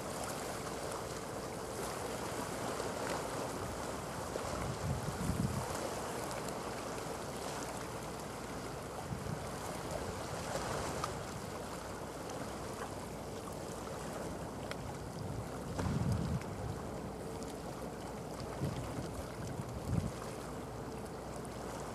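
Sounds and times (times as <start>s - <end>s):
faint steady hum: 0.0s - 21.9s
sea noise: 0.0s - 21.9s
wind: 0.0s - 21.9s
wind buffeting microphone: 4.5s - 5.8s, 15.2s - 16.8s, 19.6s - 20.2s.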